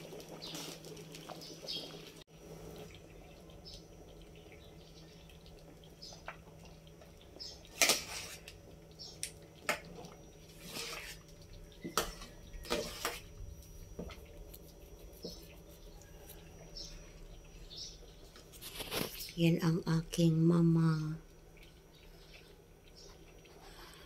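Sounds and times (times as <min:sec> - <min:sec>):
ladle stirring thick porridge: 0:09.6 - 0:17.4
ladle scraping and knocking pot: 0:11.8 - 0:13.3.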